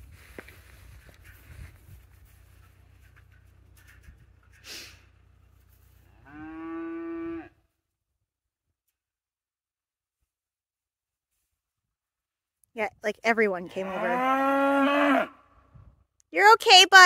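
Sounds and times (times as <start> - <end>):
cow mooing: 6.1 - 7.6, 13.7 - 15.5.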